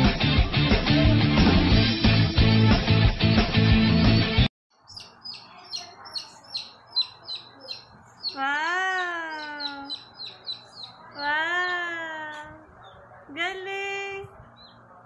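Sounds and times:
chick peeping: 4.8s - 13.1s.

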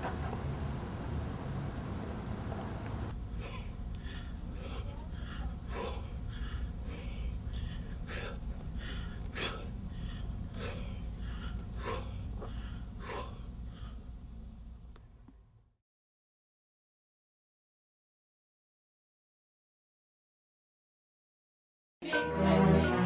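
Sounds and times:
steady low hum: 0.0s - 15.8s
man breathing hard in puffs: 3.4s - 14.3s.

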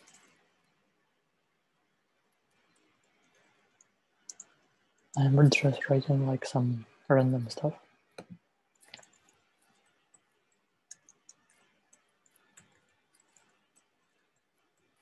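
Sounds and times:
computer keyboard typing: 0.0s - 0.4s, 3.1s - 4.6s, 8.8s - 15.0s.

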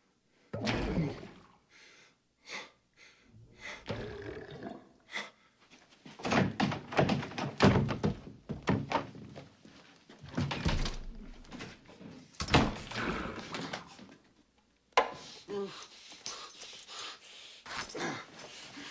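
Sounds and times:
stomach gurgling: 3.8s - 5.1s
thuds and knocks: 6.2s - 9.4s.

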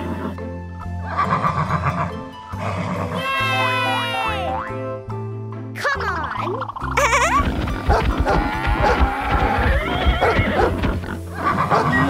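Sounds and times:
overlapping animal calls: 6.8s - 12.0s.

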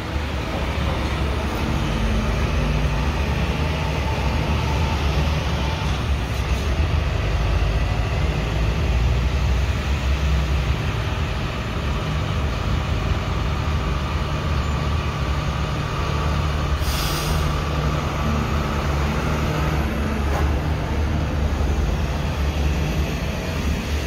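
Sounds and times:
diesel engine droning: 0.0s - 24.0s
short hiss: 16.8s - 17.5s.

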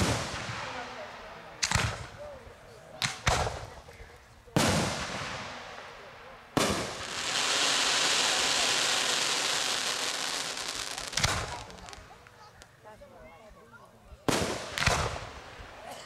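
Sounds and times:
firework bangs: 0.0s - 2.4s, 3.0s - 12.6s, 14.3s - 15.9s
firework hiss: 6.6s - 12.2s.

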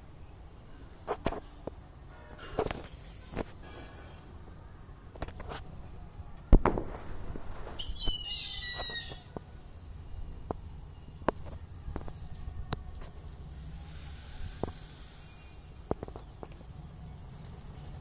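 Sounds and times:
hornbill squealing call: 7.8s - 9.3s.

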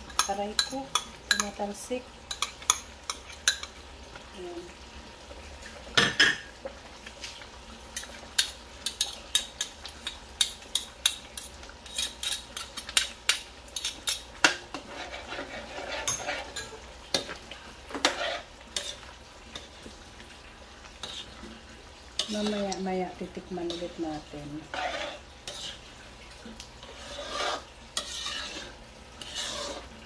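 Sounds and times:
sauce bubbling: 0.7s - 30.0s
metal spoon scraping a wok: 11.4s - 13.2s, 13.8s - 17.2s, 17.9s - 19.0s, 21.0s - 21.3s, 22.2s - 22.8s, 23.6s - 25.8s, 26.8s - 29.9s.

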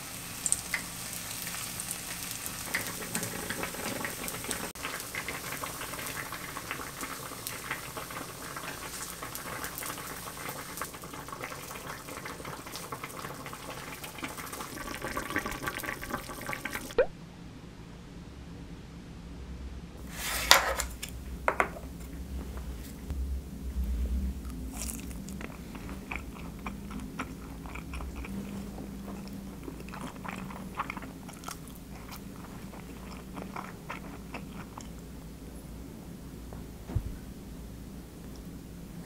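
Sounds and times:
biting and chewing food: 24.4s - 35.0s.

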